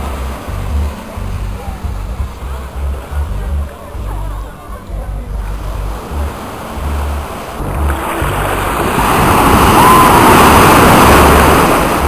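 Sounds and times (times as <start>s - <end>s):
surf breaking on sand: 5.6s - 12.0s
wind buffeting microphone: 7.6s - 12.0s.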